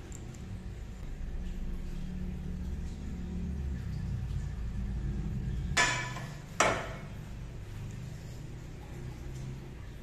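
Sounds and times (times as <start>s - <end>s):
low steady hum: 0.0s - 10.0s
metal-on-metal knocks: 5.8s - 7.1s.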